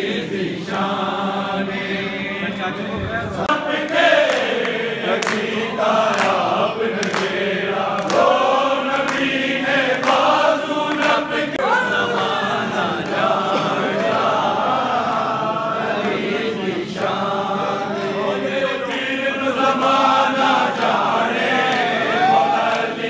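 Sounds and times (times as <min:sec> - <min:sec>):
crowd of men chanting: 0:00.0 - 0:23.0
hand claps: 0:03.5 - 0:14.3, 0:16.9 - 0:23.0.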